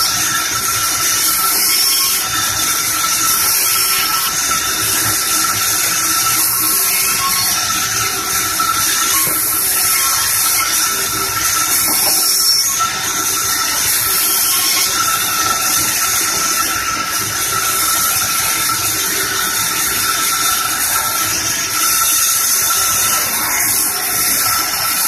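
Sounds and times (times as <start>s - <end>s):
band saw sawing a log: 0.0s - 25.0s
thin steady whine: 0.0s - 25.0s.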